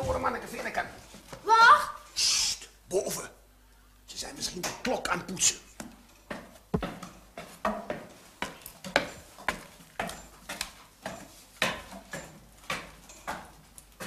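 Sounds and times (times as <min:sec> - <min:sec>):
footsteps on wooden stairs: 0:06.3 - 0:13.5.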